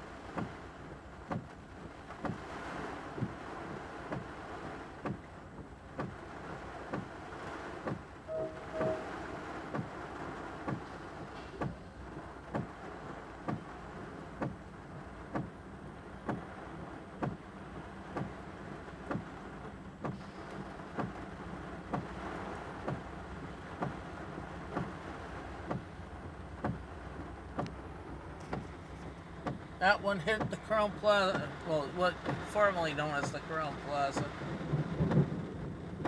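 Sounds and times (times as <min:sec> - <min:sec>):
steady rain hiss: 0:00.0 - 0:36.0
windshield wipers knocking: 0:00.2 - 0:20.2, 0:20.8 - 0:36.0
low hum: 0:08.3 - 0:11.9.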